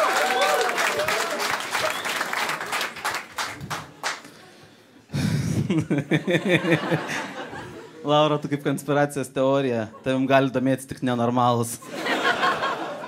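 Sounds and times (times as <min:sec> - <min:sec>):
audience applause: 0:00.0 - 0:04.4
man laughing into microphone: 0:05.2 - 0:07.8.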